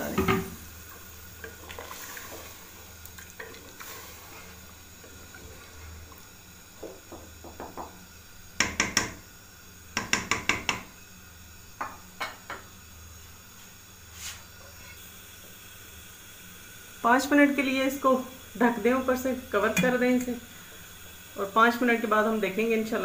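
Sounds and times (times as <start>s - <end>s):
wooden spoon stirring liquid: 0.9s - 6.2s
spoon knocking against pot: 6.8s - 8.0s, 8.6s - 9.2s, 10.0s - 10.9s.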